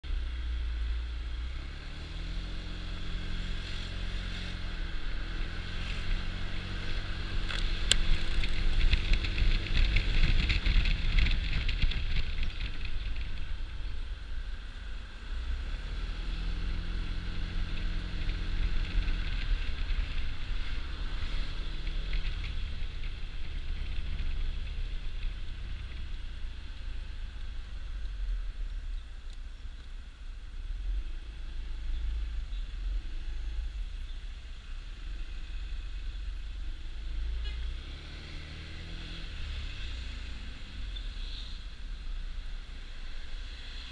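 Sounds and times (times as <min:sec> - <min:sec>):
wind rushing over microphone: 0:03.8 - 0:26.2.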